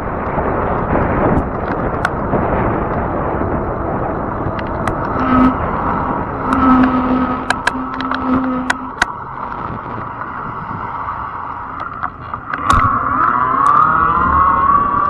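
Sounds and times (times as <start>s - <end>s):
tyre and wind noise: 0.0s - 15.0s
electric motor whining: 1.3s - 15.0s
clicks and knocks: 6.4s - 10.4s.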